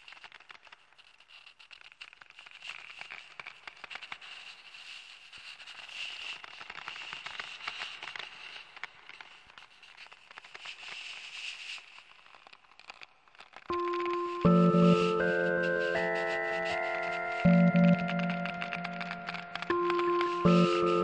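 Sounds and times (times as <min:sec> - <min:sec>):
dense electronic crackling and clicking: 0:00.0 - 0:21.0
faint steady high tone: 0:13.7 - 0:21.0.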